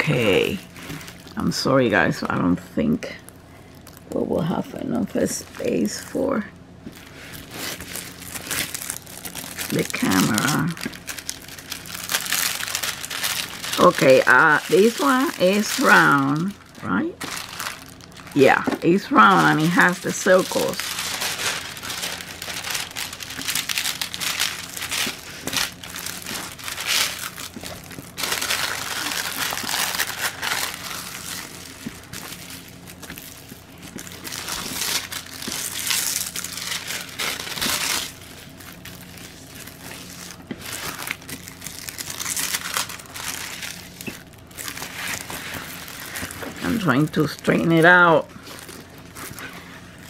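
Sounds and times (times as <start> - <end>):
plastic film crinkling: 0.0 - 2.4, 3.0 - 50.0.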